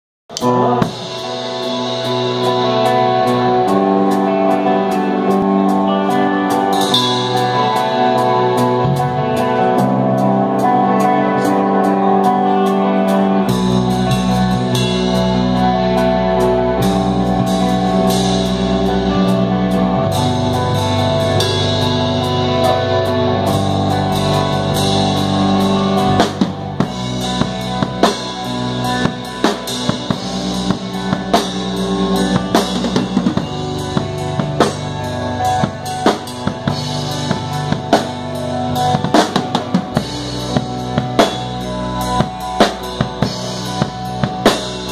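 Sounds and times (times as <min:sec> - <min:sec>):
low bass notes: 0:00.3 - 0:44.9
rock band held chords: 0:00.3 - 0:44.9
drum kit hits: 0:13.5 - 0:44.9.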